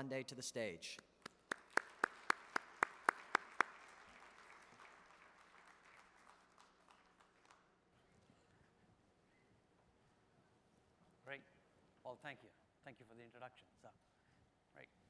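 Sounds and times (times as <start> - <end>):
hand clapping near microphone: 1.0 - 8.2
audience applause: 1.3 - 7.7.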